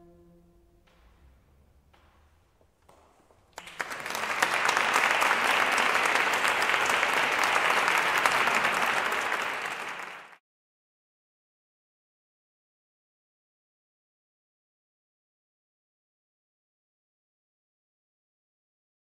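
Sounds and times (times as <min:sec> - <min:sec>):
audience applauding: 0:03.5 - 0:10.4.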